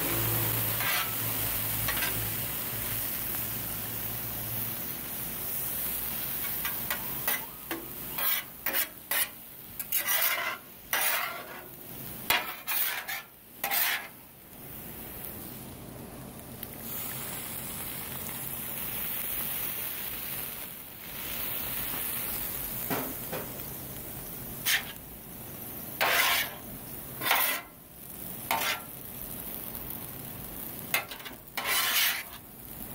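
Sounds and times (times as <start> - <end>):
metal spatula scraping griddle: 0.0 - 2.4, 6.3 - 14.2, 24.6 - 25.0, 26.0 - 27.8, 28.5 - 29.0, 30.9 - 32.5
food sizzling: 0.0 - 32.9.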